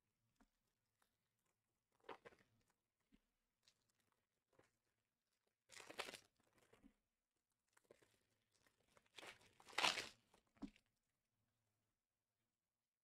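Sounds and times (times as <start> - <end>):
wrapper crinkling and tearing: 9.6 - 10.2.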